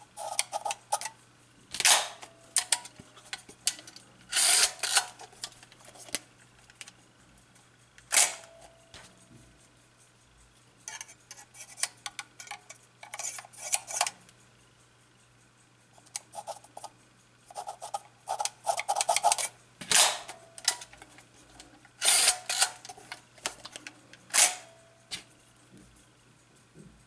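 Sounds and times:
sharp mechanical clacks with ring: 1.8 - 2.8, 8.1 - 9.1, 19.9 - 20.9, 24.3 - 25.2
small clicks and rattles: 4.8 - 7.0, 17.9 - 24.6.

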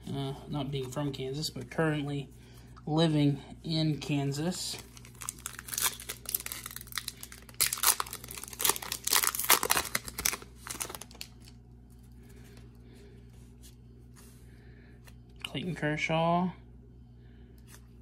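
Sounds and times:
wrapper tearing and crinkling: 4.8 - 11.6.

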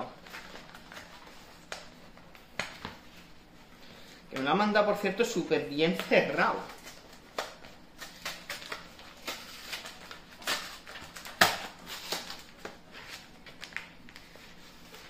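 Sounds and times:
paper envelope crinkling: 5.9 - 15.0.

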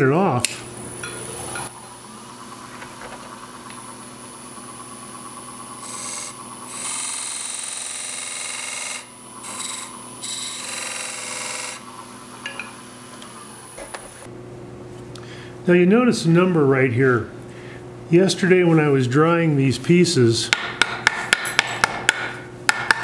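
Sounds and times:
wood lathe motor hum: 1.0 - 14.3
chisel cutting spinning wood: 1.1 - 14.3.

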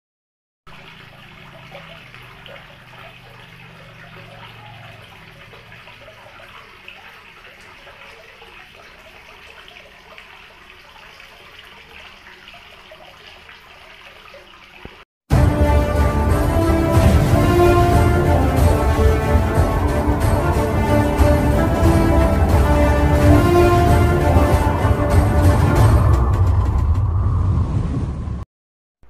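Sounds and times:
running splashing water: 0.7 - 26.2
low hum: 15.3 - 28.4.

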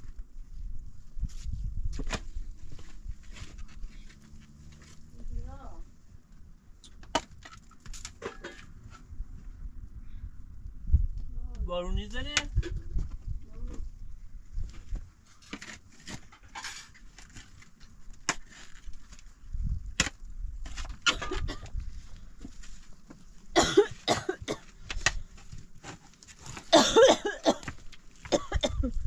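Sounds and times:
shovel digging stony soil: 15.2 - 19.3.

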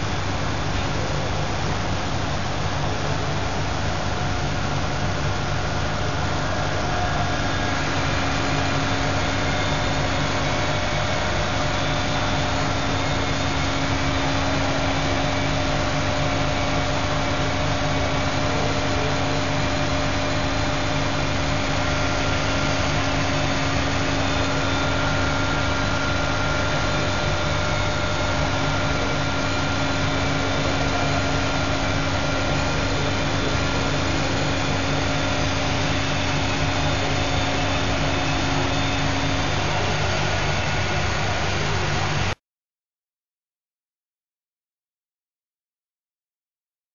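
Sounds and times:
stone-cutting saw droning: 5.9 - 42.4.

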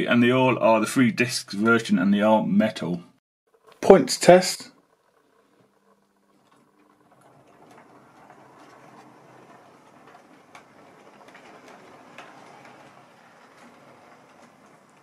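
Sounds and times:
model train rolling: 3.6 - 15.0
wheels clicking over rail joints: 6.4 - 15.0.

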